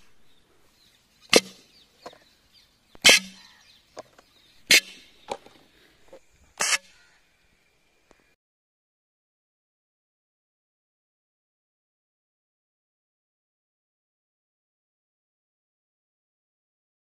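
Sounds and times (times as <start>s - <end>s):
air gun pops: 6.6s - 6.9s.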